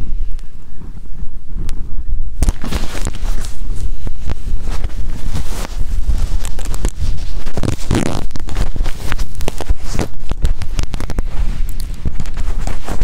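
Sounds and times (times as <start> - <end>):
wind rumbling on microphone: 0.0 - 13.0
fire crackling and popping: 1.5 - 13.0.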